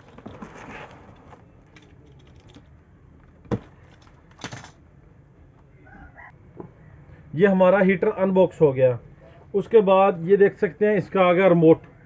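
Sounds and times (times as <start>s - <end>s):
cardboard flaps rustling: 0.0s - 1.5s.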